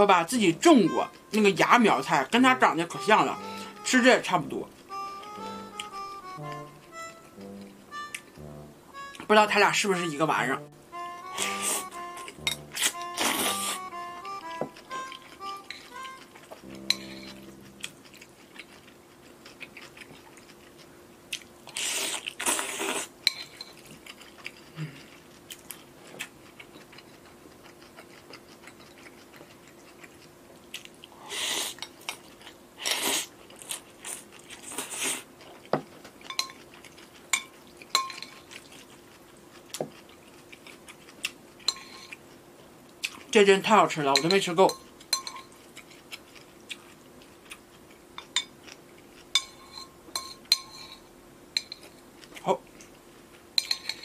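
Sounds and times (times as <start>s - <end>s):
chewing and crunching: 11.4s - 43.4s, 44.2s - 54.0s
metal tongs tapping ceramic bowl: 12.4s - 12.8s, 16.8s - 17.4s, 38.0s - 38.3s, 44.2s - 45.5s, 49.4s - 50.8s, 51.6s - 51.9s, 53.6s - 54.0s
noodle slurping: 12.8s - 13.8s.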